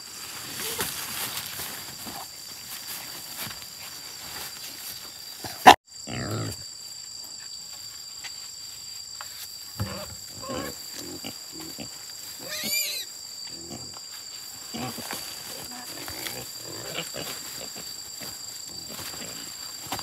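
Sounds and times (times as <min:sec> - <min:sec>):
pigs grunting: 0:05.4 - 0:06.6, 0:09.8 - 0:14.0, 0:14.6 - 0:19.6.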